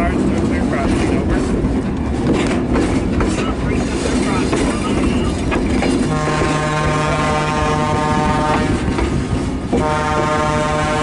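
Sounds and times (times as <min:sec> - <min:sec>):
rolling train rumble and clatter: 0:00.0 - 0:11.0
train whistle blasts: 0:06.1 - 0:08.8, 0:09.8 - 0:11.0.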